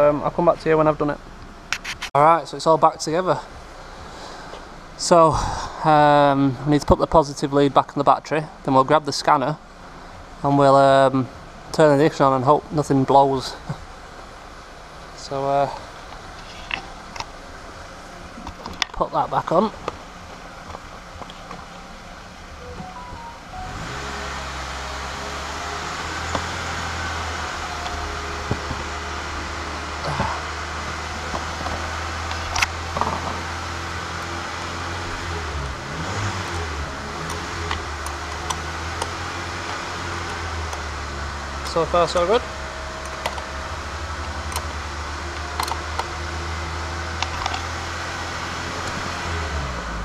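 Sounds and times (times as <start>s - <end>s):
machine hum with fan rush: 13.5s - 50.0s.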